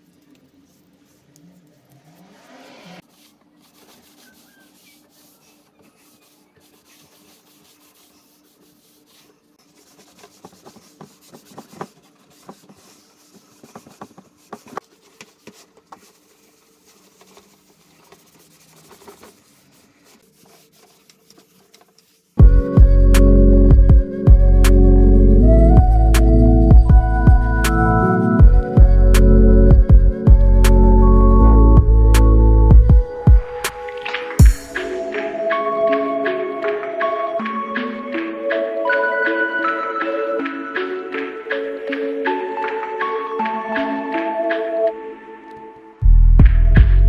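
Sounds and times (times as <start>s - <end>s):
cloth wiping wooden table: 2.0s - 22.4s.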